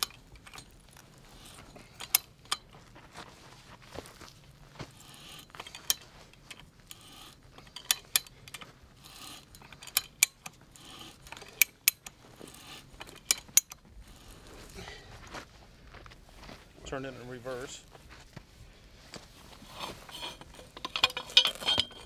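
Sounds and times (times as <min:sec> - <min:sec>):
threader scraping on pipe: 0:00.0 - 0:02.4, 0:04.9 - 0:14.8, 0:19.3 - 0:22.0
pipe threader ratchet clicks: 0:05.1 - 0:14.3, 0:19.8 - 0:22.0.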